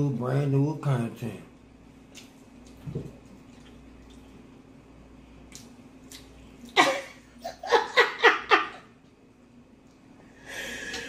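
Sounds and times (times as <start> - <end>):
woman laughing: 6.8 - 8.9.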